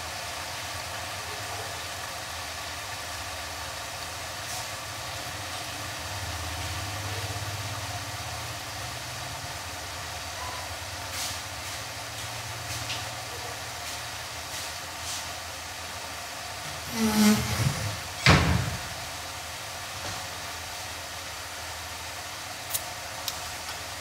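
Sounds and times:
covered pot humming and hissing: 0:00.0 - 0:24.0
short hissing spits: 0:11.1 - 0:11.9, 0:22.7 - 0:23.0.

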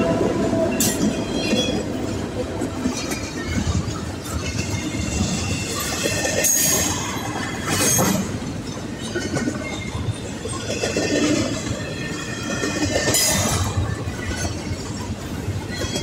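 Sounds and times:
freight train rumbling and clattering: 0:00.0 - 0:16.0
wheel squeals: 0:03.2 - 0:16.0.

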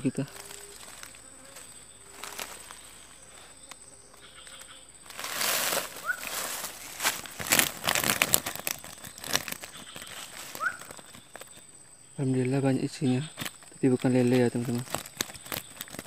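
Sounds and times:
faint clicks: 0:03.6 - 0:04.8
fish trap rattling on leaves: 0:05.1 - 0:11.6, 0:13.3 - 0:16.0
fish flapping against mesh: 0:05.6 - 0:11.6, 0:14.4 - 0:16.0.

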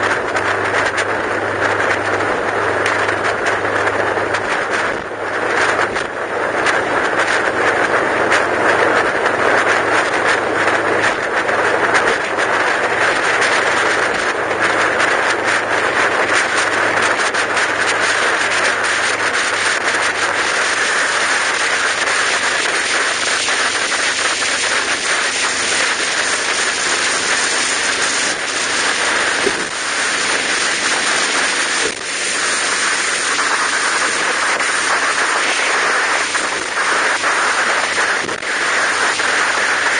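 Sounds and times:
low engine hum: 0:00.0 - 0:39.9
road and wind noise: 0:00.0 - 0:39.9.

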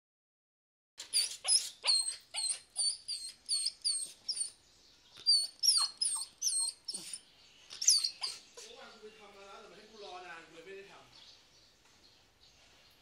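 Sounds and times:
puppy yipping: 0:01.0 - 0:04.6, 0:05.2 - 0:08.8.

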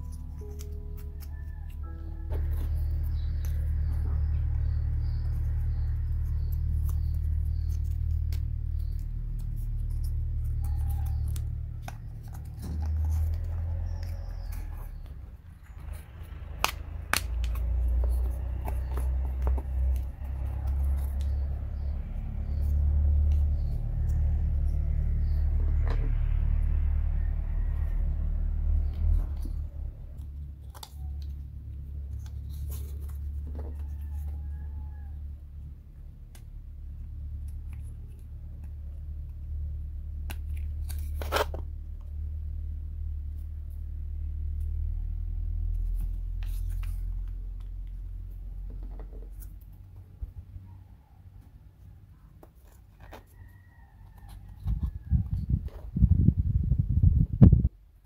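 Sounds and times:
low rumble: 0:00.0 - 0:30.9, 0:54.6 - 0:58.0.

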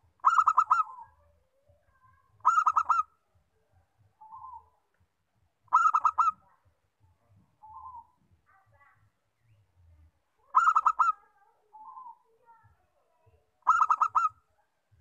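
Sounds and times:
dove staccato cooing: 0:00.0 - 0:01.3, 0:02.0 - 0:03.2, 0:04.2 - 0:04.7, 0:05.7 - 0:06.7, 0:07.6 - 0:08.2, 0:10.5 - 0:12.2, 0:13.6 - 0:14.4
soft dove coos: 0:00.2 - 0:01.3, 0:02.4 - 0:03.1, 0:04.2 - 0:04.7, 0:05.7 - 0:06.4, 0:07.6 - 0:08.2, 0:10.5 - 0:12.2, 0:13.6 - 0:14.4.

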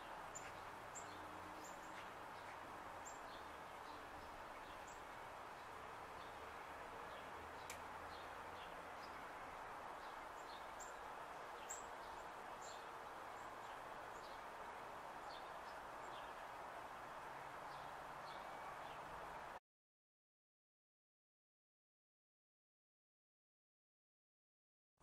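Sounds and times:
small birds chirping: 0:00.0 - 0:19.6
steady background hiss: 0:00.0 - 0:19.6.

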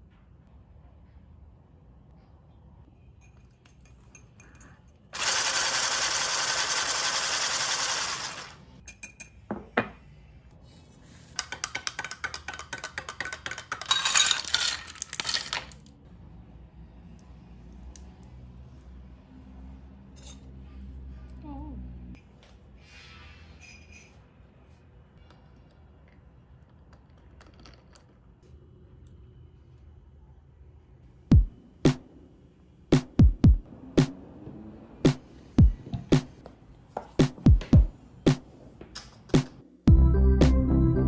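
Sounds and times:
spoon clinking: 0:03.2 - 0:05.0, 0:08.8 - 0:09.5, 0:11.4 - 0:15.4
spoon stirring against a glass: 0:03.2 - 0:05.0, 0:11.3 - 0:14.4
electric whisk running: 0:05.2 - 0:08.7.

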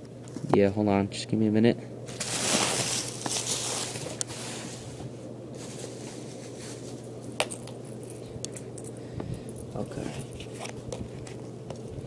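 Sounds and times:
bubble wrap rustling and crinkling: 0:02.1 - 0:08.0.

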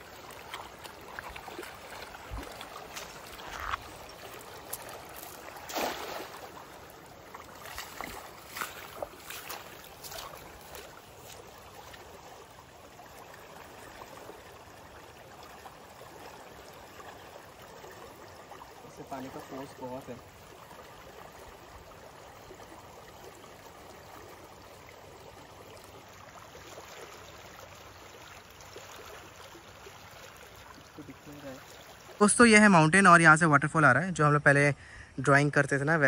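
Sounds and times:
mountain stream rushing: 0:00.0 - 0:32.9
sharp knocks or splashes: 0:04.6 - 0:06.6, 0:07.6 - 0:11.4.

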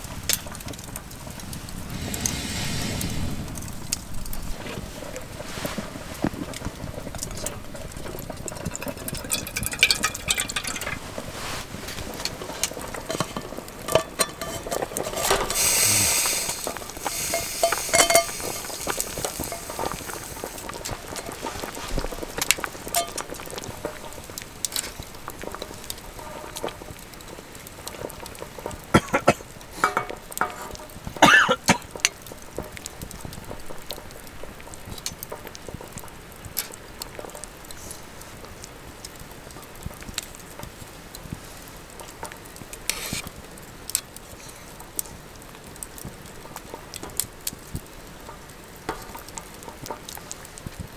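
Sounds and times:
pot boiling: 0:00.0 - 0:50.9
rushing hiss: 0:01.5 - 0:06.3, 0:15.1 - 0:24.3, 0:42.9 - 0:43.3
metal tongs clinking on pot: 0:08.1 - 0:11.0, 0:12.2 - 0:15.7, 0:16.3 - 0:21.4, 0:22.8 - 0:26.9, 0:28.6 - 0:32.8.

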